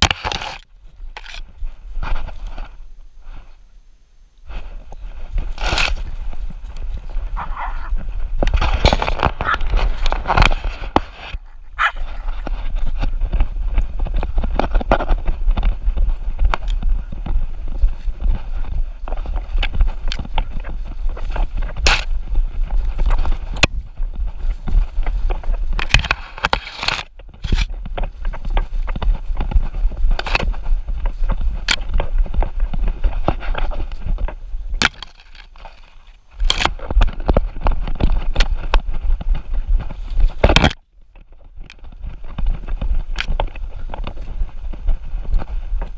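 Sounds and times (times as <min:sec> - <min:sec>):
camera handling rumble: 0:00.0 - 0:02.7, 0:04.5 - 0:45.9.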